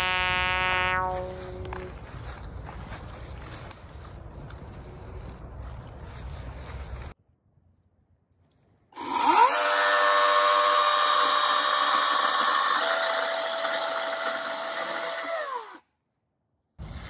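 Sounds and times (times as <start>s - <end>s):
chainsaw cutting branch: 9.0s - 15.8s.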